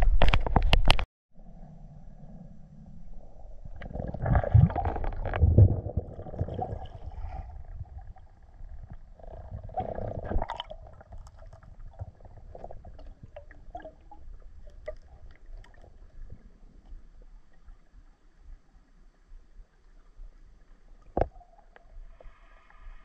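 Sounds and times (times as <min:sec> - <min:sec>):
scattered crackles: 0:00.0 - 0:01.1, 0:03.8 - 0:07.4
underwater gurgling rumble: 0:01.4 - 0:23.0.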